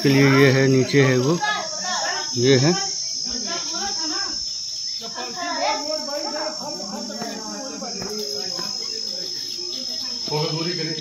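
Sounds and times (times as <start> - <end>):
faint background voices: 0.0 - 11.0
insects trilling: 0.0 - 11.0.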